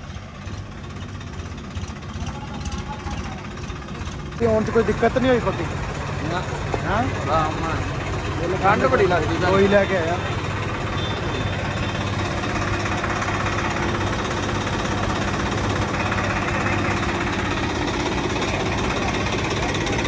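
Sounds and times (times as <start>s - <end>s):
diesel tractor engine idling: 0.0s - 20.0s.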